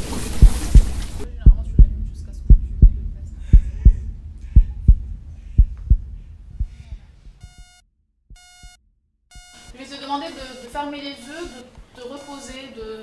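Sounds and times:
heartbeat thumps: 0:00.0 - 0:09.9
short electronic beeps: 0:08.4 - 0:12.8.

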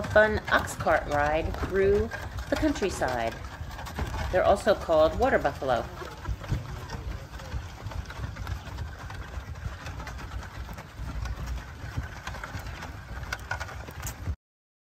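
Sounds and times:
light knocks from cart wheels: 0:00.0 - 0:14.4
wooden cart rolling on dirt: 0:00.0 - 0:14.4.

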